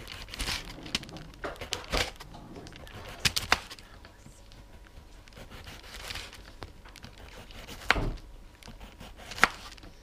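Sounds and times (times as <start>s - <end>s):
knife slicing cucumber: 7.1s - 9.7s.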